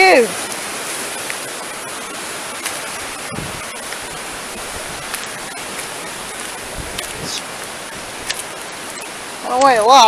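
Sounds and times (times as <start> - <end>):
river rushing: 0.0 - 9.9.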